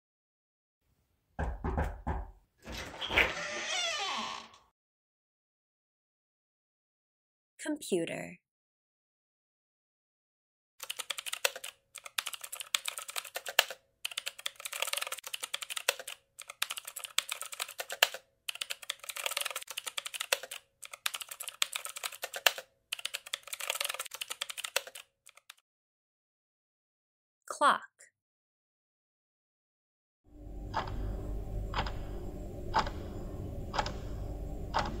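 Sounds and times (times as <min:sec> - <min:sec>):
keyboard typing: 0:10.8 - 0:25.6, 0:33.7 - 0:34.1, 0:34.7 - 0:35.0.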